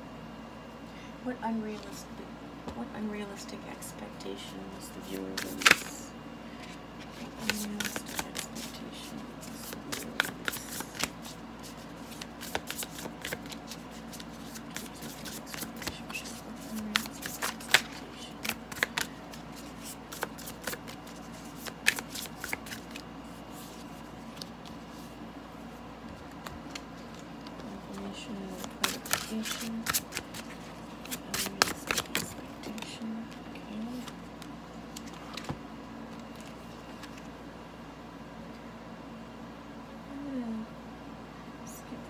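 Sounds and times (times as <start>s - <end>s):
cards being shuffled: 5.0s - 6.0s, 6.6s - 25.2s, 26.1s - 37.3s.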